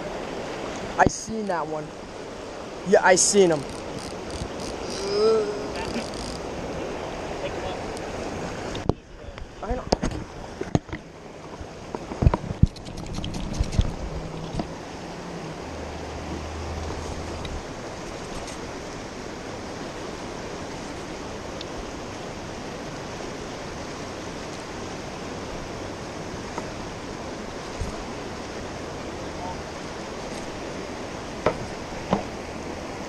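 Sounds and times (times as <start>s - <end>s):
river current rushing: 0.0s - 33.0s
sharp knocks and bumps: 31.4s - 32.3s.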